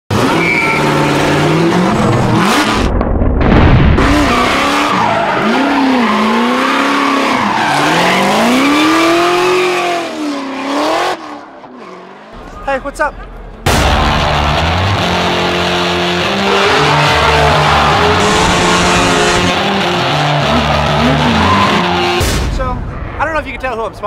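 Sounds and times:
car engine revving: 0.1s - 3.2s, 3.8s - 12.6s, 13.2s - 22.3s
tyres squealing: 16.4s - 22.2s.

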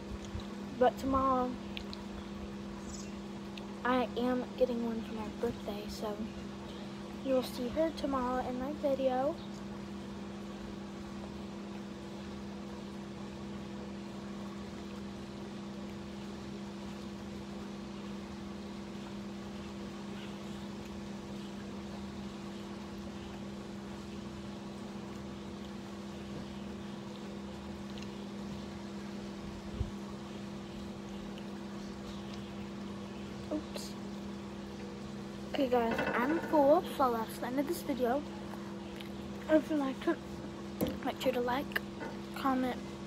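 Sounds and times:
pool filter pump humming: 0.0s - 43.0s.

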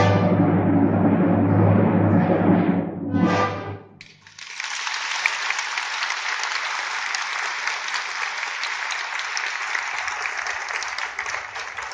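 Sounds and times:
audience applauding: 4.0s - 11.9s.

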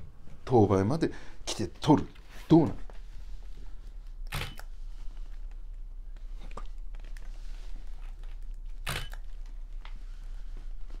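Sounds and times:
camera shutter clack: 4.3s - 4.7s, 8.8s - 9.2s.

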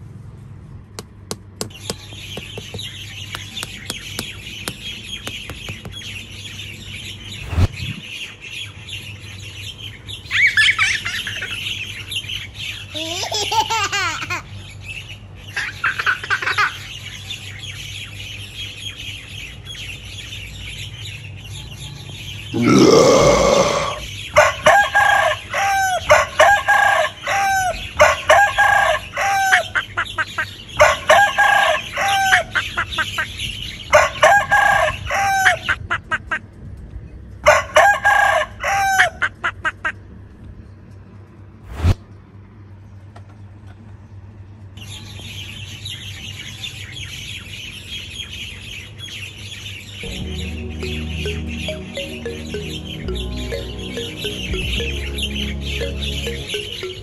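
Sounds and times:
birds chirping: 1.7s - 13.8s, 14.6s - 24.4s, 46.8s - 57.0s.

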